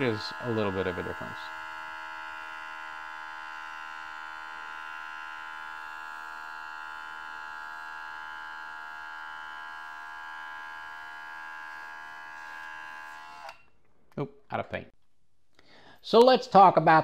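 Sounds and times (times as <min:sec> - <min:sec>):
airbrush air hissing: 0:00.0 - 0:03.1
compressor motor whine: 0:00.0 - 0:14.0.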